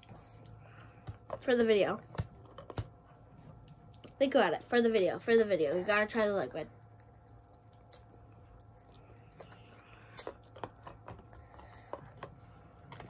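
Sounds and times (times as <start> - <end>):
low steady hum: 0.0 - 13.0
candy chewing mouth clicks: 6.8 - 12.9.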